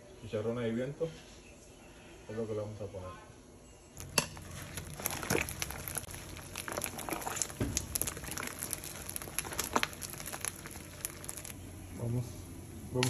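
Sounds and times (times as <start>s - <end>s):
spoon clicking and scraping pot: 4.0s - 4.6s
crisp food crackling: 4.0s - 11.7s.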